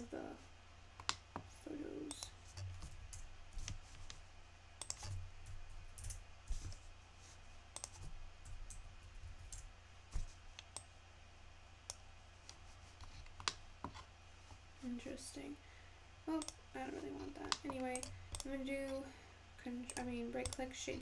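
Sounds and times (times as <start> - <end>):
low steady hum: 0.0 - 21.0
mouse and keyboard clicks: 4.8 - 5.1, 19.9 - 21.0.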